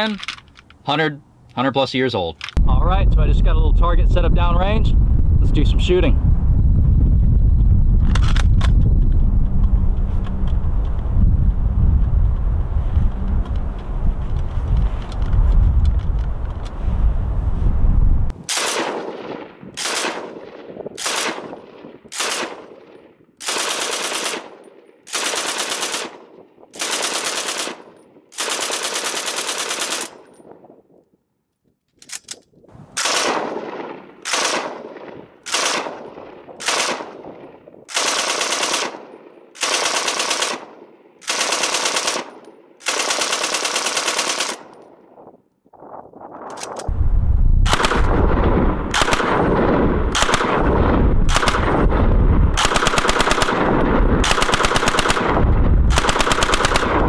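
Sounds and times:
machine gun firing bursts: 0:18.5 - 0:30.2, 0:33.0 - 0:44.8, 0:47.7 - 0:57.0.

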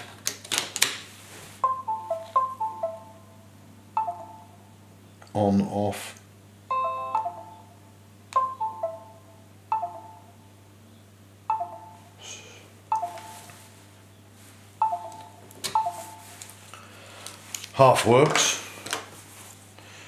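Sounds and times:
usb device chime: 0:01.6 - 0:03.4, 0:04.0 - 0:04.6, 0:06.7 - 0:07.8, 0:08.4 - 0:10.3, 0:11.5 - 0:12.1, 0:12.9 - 0:13.5, 0:14.8 - 0:16.3.

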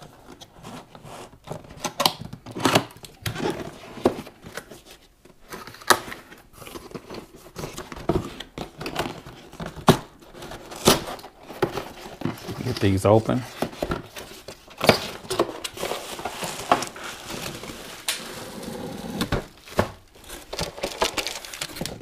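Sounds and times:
cardboard tearing and rustling: 0:05.6 - 0:22.0.

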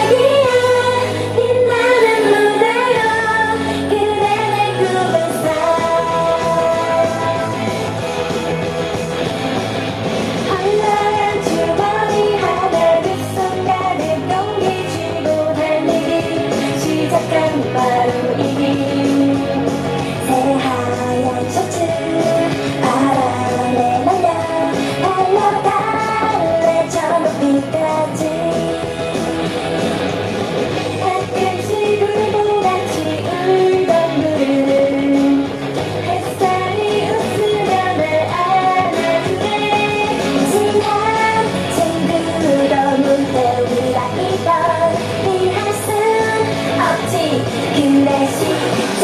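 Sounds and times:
pop song with female singer: 0:00.0 - 0:08.6, 0:10.3 - 0:29.9, 0:30.7 - 0:49.0.

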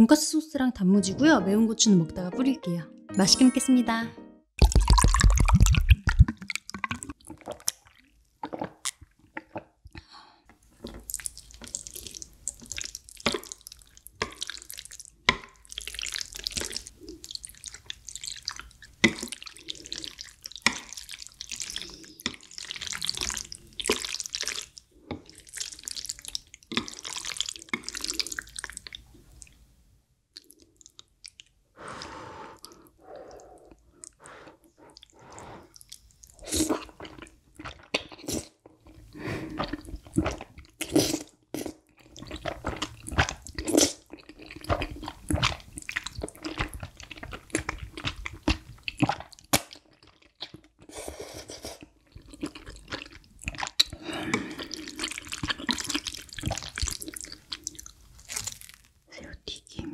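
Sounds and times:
noodles slurped and chewed: 0:04.6 - 0:10.1, 0:10.7 - 0:29.6, 0:30.4 - 0:58.9
chopsticks stirring sticky noodles: 0:11.1 - 0:29.0.

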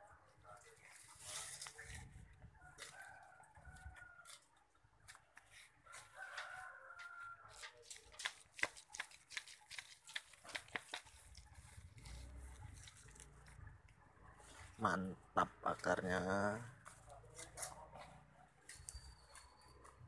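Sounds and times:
potting soil crackling and rustling: 0:00.2 - 0:16.0
rooster crowing: 0:05.9 - 0:07.7.

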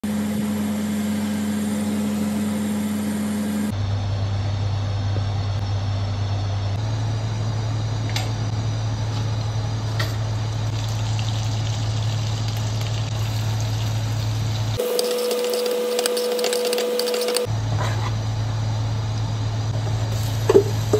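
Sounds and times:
hot oil sizzling in a wok: 0:10.4 - 0:16.0, 0:20.1 - 0:20.9
onions frying and crackling: 0:10.4 - 0:17.4.

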